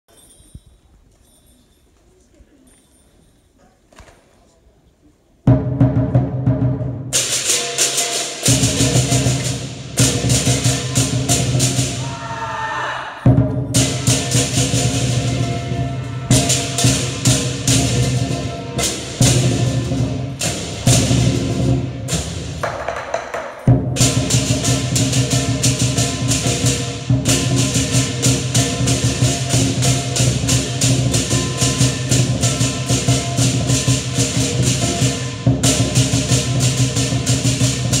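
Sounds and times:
big drum beating: 5.5s - 12.2s, 13.3s - 38.0s
cymbals crashing: 7.1s - 12.6s, 13.2s - 22.7s, 23.5s - 38.0s
gong: 13.7s - 22.2s, 23.7s - 38.0s.

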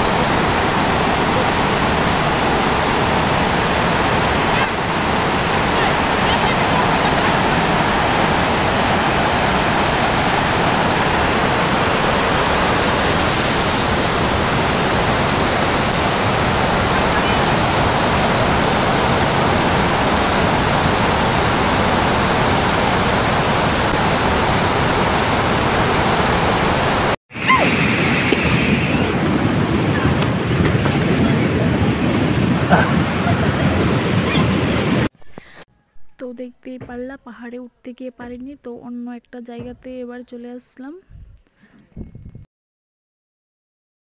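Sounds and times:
water rushing down spillway: 0.0s - 35.1s.

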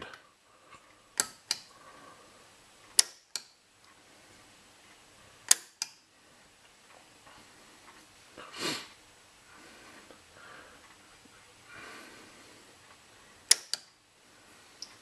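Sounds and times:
toggle switch click: 3.0s - 3.5s, 5.5s - 6.0s, 13.5s - 13.9s
point motor snapping: 13.5s - 13.9s.

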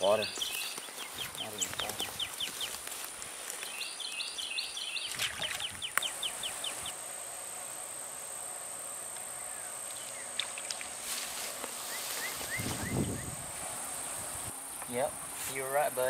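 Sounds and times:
birds chirping: 0.0s - 16.0s
high-pitched insect drone: 6.0s - 16.0s.

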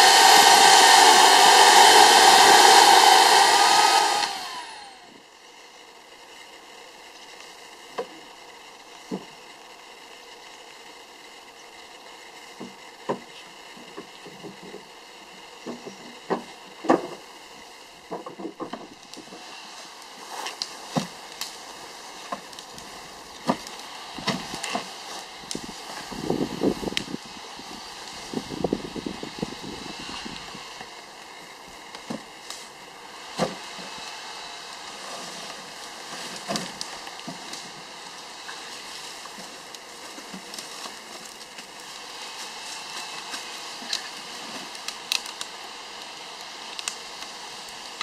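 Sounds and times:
bonfire rushing: 0.0s - 4.9s, 15.4s - 48.0s
burning wood crackling and popping: 0.0s - 48.0s.

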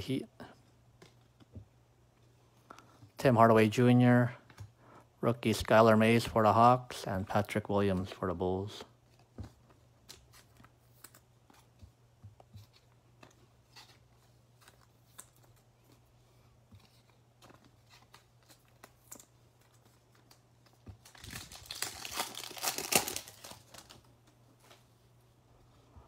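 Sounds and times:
foil pack tearing: 21.0s - 24.0s.

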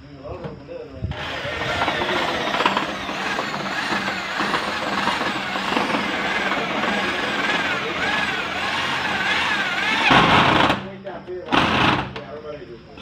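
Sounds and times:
cordless drill driving screws: 1.1s - 10.8s.

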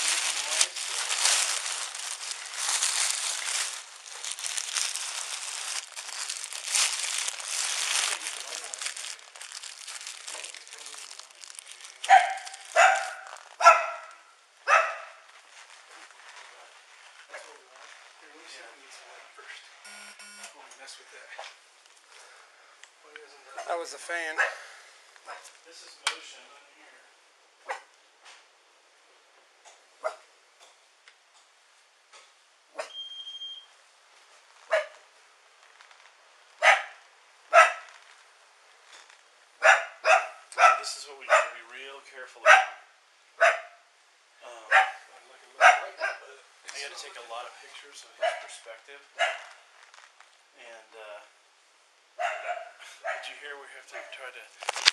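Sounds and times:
dog barking: 12.1s - 15.3s, 24.4s - 24.6s, 25.3s - 25.5s, 27.6s - 27.9s, 30.0s - 30.3s, 34.7s - 35.0s, 36.6s - 37.9s, 39.6s - 41.6s, 42.4s - 43.8s, 44.7s - 46.3s, 48.2s - 48.6s, 49.2s - 49.5s, 52.2s - 53.3s, 53.9s - 54.2s.

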